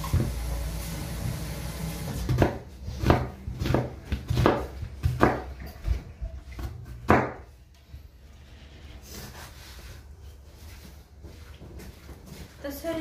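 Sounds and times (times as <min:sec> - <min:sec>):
knife chopping on cutting board: 0:02.3 - 0:05.6, 0:06.6 - 0:07.5.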